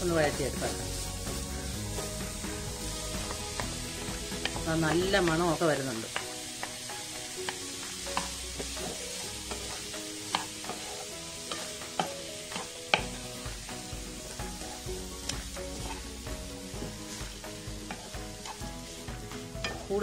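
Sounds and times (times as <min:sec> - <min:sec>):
oil sizzling: 0:00.0 - 0:20.0
wooden spatula scraping pan: 0:03.1 - 0:13.3, 0:14.2 - 0:20.0.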